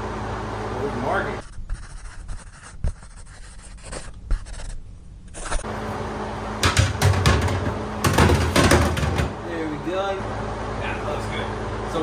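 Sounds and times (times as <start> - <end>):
pencil scratching: 1.4 - 5.7
hatch knocking and clattering: 6.6 - 9.4.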